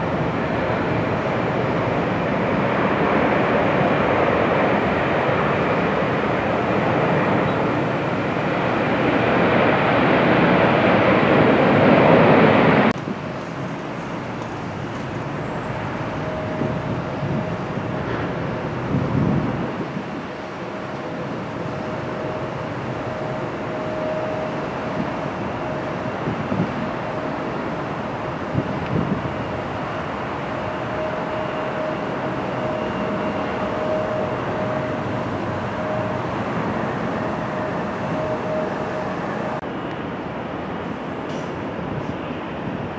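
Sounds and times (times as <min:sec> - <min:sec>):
jet engines on takeoff roll: 0:00.0 - 0:42.9
jet plane landing: 0:00.0 - 0:42.9
faint steady whine: 0:12.9 - 0:42.9.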